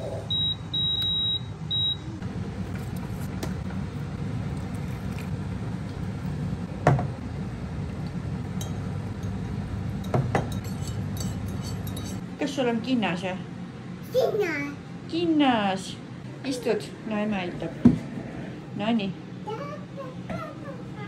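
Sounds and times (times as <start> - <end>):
oven beeping: 0.0 - 2.6
oven humming: 0.0 - 21.0.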